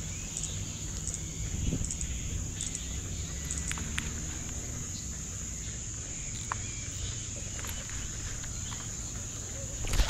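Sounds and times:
high-pitched insect drone: 0.0 - 10.0
faint clicks: 3.4 - 4.6.

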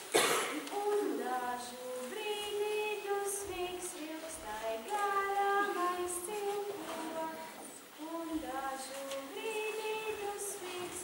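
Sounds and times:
girl singing long held notes: 0.6 - 11.0.

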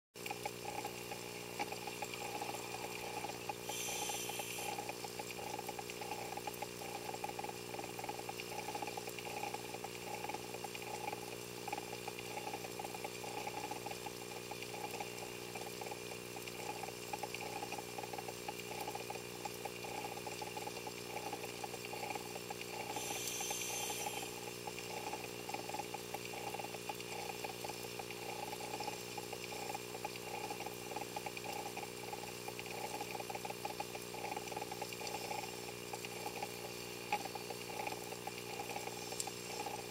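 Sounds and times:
underwater fluttering hum: 0.3 - 15.2, 19.7 - 39.9
short burst of hiss: 3.7 - 4.8, 23.0 - 24.4.

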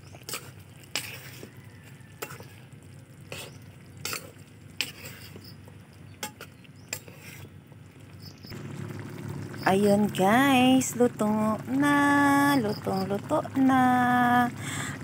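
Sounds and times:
sauce bubbling: 0.0 - 15.0
tongs clicking and scraping a pan: 0.1 - 1.5, 2.2 - 2.6, 3.2 - 5.6, 6.2 - 7.5.

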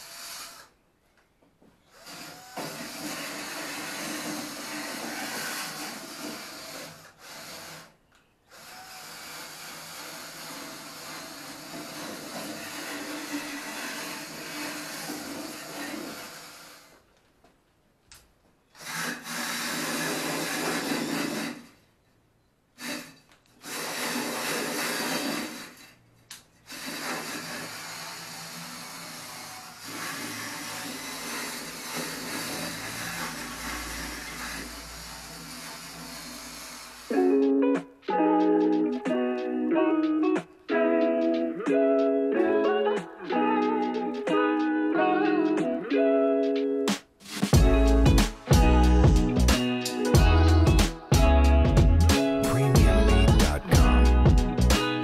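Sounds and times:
power tool grinding sheet metal: 0.0 - 0.7, 2.0 - 7.9, 8.5 - 17.0, 18.8 - 21.8, 22.8 - 25.9, 26.6 - 37.3.

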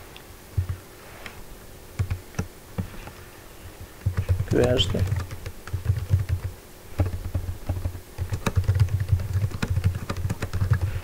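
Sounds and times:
keyboard key clicks: 4.0 - 10.8.

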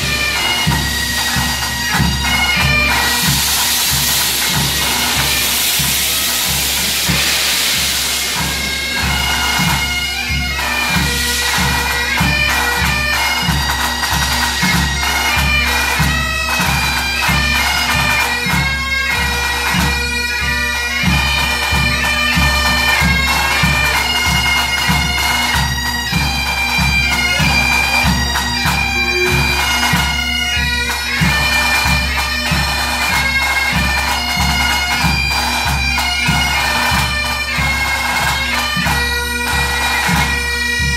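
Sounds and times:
bass and snare drums beat: 0.0 - 18.8
bagpipes playing: 0.0 - 40.9
locomotive steam hissing: 0.0 - 40.9.

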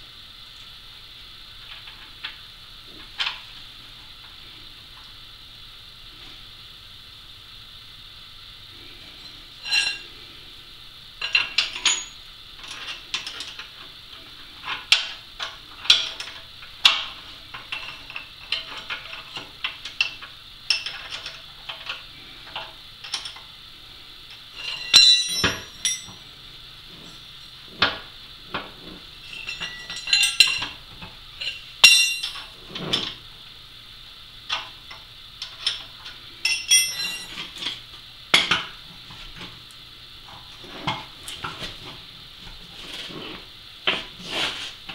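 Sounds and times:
hand tools clanking on steel: 9.6 - 10.1, 11.2 - 13.7, 24.6 - 26.2, 26.9 - 30.8, 31.4 - 33.2, 35.4 - 37.8.

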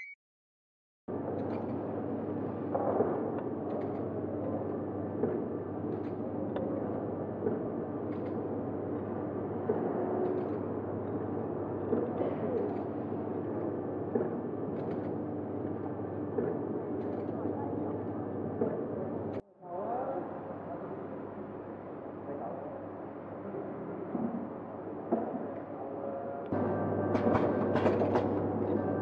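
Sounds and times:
packing machine hum: 26.5 - 29.0.

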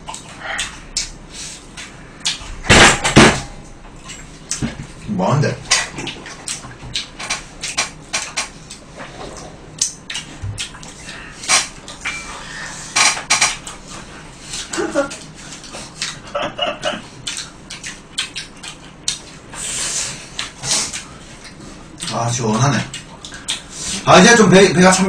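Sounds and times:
crunchy chewing and biting: 17.0 - 22.2.

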